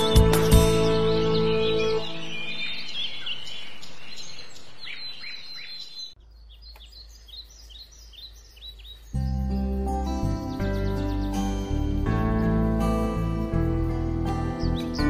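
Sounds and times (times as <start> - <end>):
background music: 0.0 - 2.7, 9.2 - 15.0
small bird chirping: 0.0 - 15.0.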